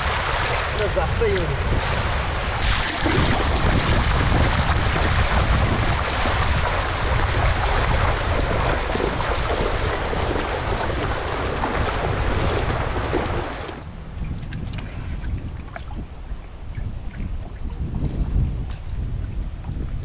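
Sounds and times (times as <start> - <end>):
wash of water: 0.0 - 13.9
low rumble: 0.0 - 20.0
wind buffeting microphone: 0.0 - 20.0.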